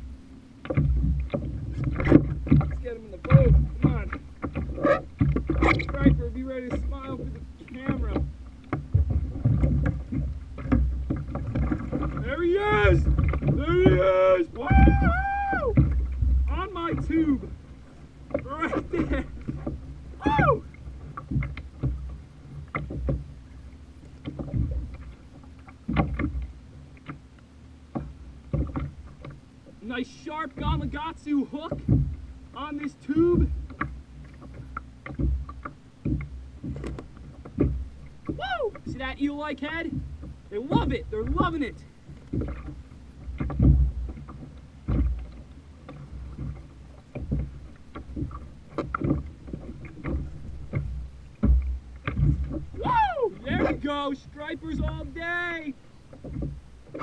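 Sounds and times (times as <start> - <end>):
wind and water rumble: 0.0 - 57.0
knocks and low thumps: 0.6 - 7.2, 7.8 - 17.6, 31.8 - 32.2, 44.8 - 53.9.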